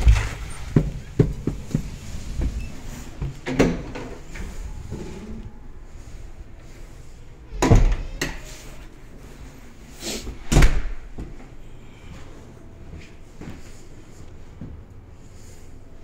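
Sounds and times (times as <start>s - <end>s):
doors being shut: 0.0s - 5.3s, 7.5s - 8.5s, 10.4s - 11.2s.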